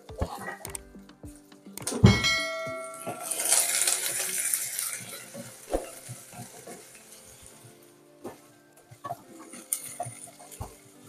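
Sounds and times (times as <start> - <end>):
bell-like chime: 2.0 - 4.6
onions sizzling in oil: 3.2 - 7.9.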